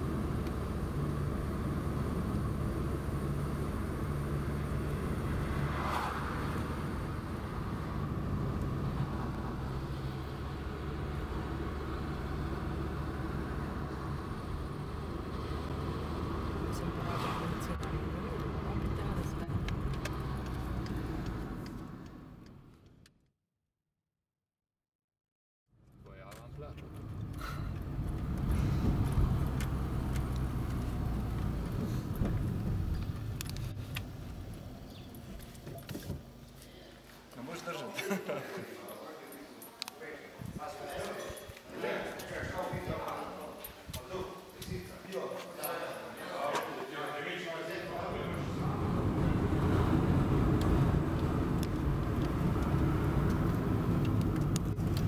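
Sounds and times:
vehicle driving on road: 0.0 - 23.2, 25.7 - 55.0
sharp clicks and rattles: 26.1 - 36.3, 50.5 - 55.0.

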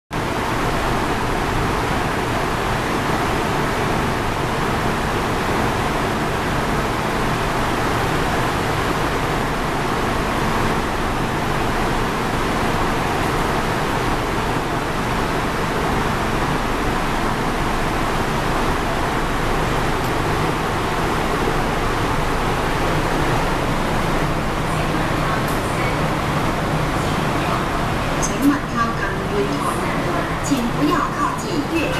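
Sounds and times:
station ventilation rushing: 0.1 - 31.9
train equipment humming: 0.2 - 31.9.

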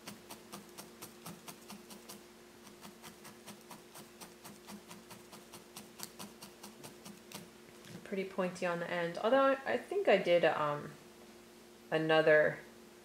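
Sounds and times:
felting needle stabbing wool: 0.0 - 7.5.

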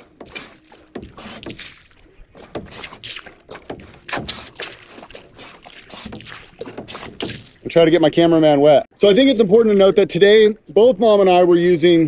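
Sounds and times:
hand pump strokes: 0.0 - 7.7
water spurting and splashing: 0.0 - 8.3.

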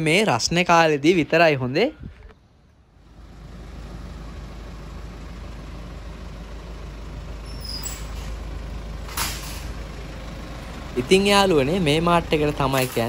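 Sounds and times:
street traffic rumble: 0.0 - 13.0
high squeak: 7.4 - 8.4.

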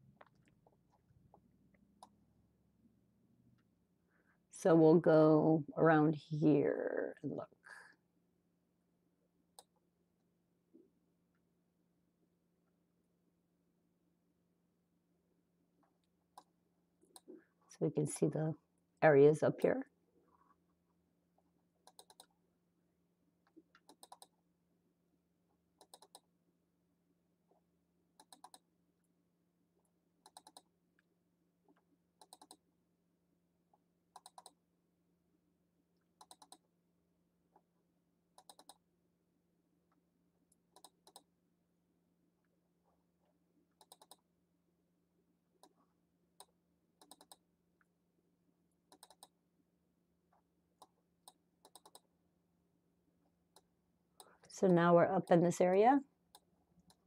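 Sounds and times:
computer mouse clicking: 21.8 - 22.3, 23.5 - 24.4, 25.8 - 26.3, 28.2 - 28.7, 30.2 - 30.7, 32.2 - 32.6, 34.1 - 34.6, 36.2 - 36.6, 38.4 - 38.8, 40.7 - 41.3, 43.7 - 44.3, 46.4 - 47.5, 48.9 - 49.4, 50.8 - 52.1.

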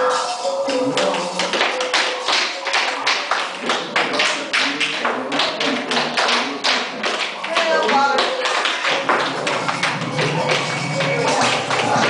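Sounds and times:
music: 0.0 - 12.0
tap shoes striking dance floor: 1.0 - 12.0.

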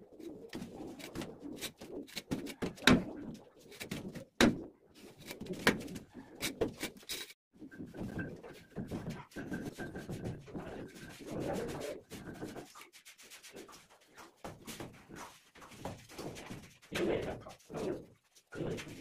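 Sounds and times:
tool scraping wet mortar: 0.5 - 3.0
hand tool tapping and scraping: 5.2 - 13.0.

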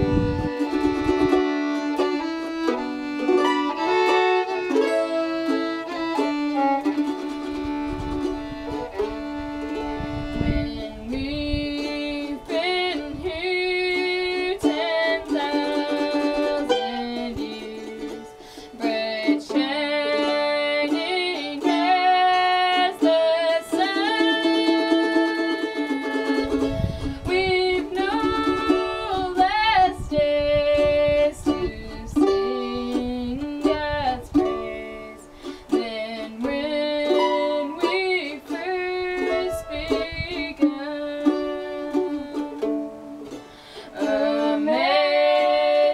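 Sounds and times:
girl singing: 0.0 - 45.9
plucked mandolin: 0.0 - 45.9.

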